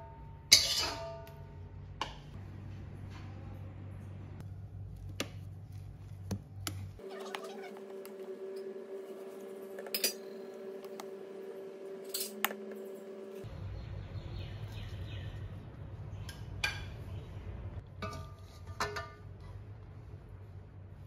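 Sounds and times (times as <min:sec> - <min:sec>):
steady hum: 0:07.7 - 0:21.0.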